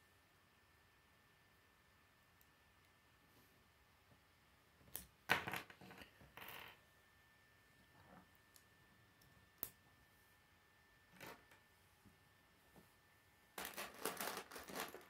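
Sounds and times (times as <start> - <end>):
plastic pieces clicking and clattering: 13.6 - 15.0.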